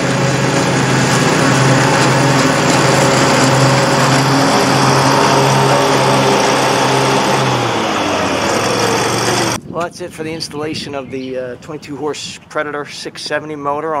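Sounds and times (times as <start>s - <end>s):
mower engine running: 0.0s - 9.6s.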